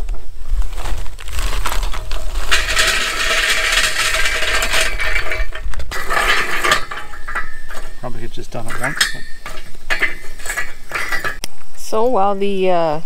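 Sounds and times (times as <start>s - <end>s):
charcoal clattering into metal bowl: 1.3s - 11.4s.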